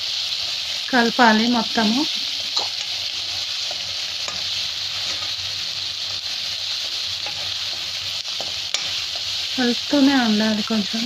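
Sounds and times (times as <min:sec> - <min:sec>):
food sizzling in hot oil: 0:00.0 - 0:11.0
metal spatula scraping pan: 0:02.5 - 0:05.6, 0:06.8 - 0:09.4.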